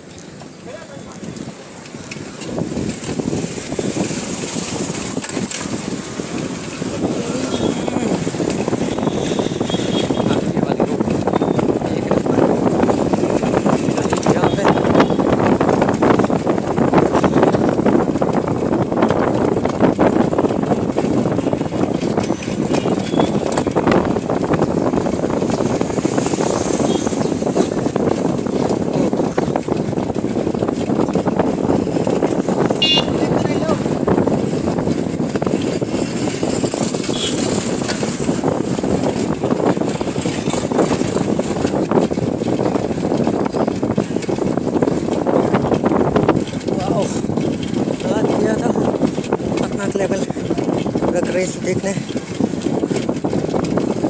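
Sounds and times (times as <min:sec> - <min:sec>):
street traffic noise: 0:00.0 - 0:54.0
wind rush on microphone: 0:00.0 - 0:54.0
indistinct voices: 0:07.0 - 0:08.9.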